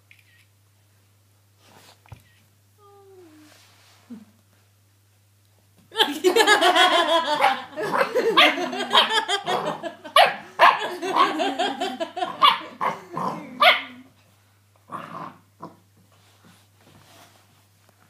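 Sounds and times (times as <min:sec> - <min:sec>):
puppy barking: 0:07.4 - 0:11.3, 0:12.3 - 0:13.0, 0:13.6 - 0:14.0.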